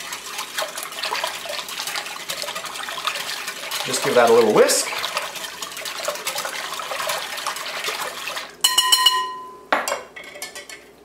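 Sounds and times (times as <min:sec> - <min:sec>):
whisk stirring liquid in glass bowl: 0:00.0 - 0:09.1
taps ringing a glass bowl: 0:08.6 - 0:10.0.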